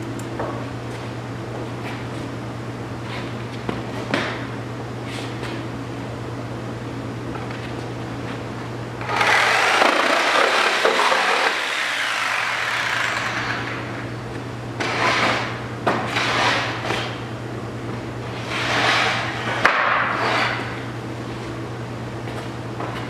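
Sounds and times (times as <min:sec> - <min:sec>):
reciprocating saw cutting wood: 0:09.0 - 0:13.8.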